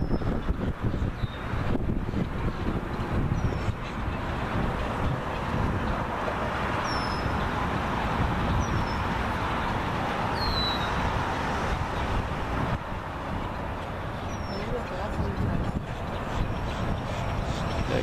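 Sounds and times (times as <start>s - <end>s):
traffic noise: 0.0s - 18.0s
bird chirps: 10.3s - 11.0s.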